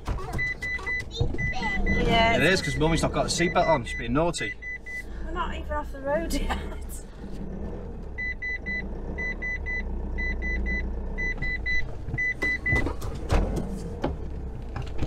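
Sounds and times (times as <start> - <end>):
reversing beeps: 0.4 - 5.1, 8.2 - 13.0
engine idling hum: 1.6 - 15.0.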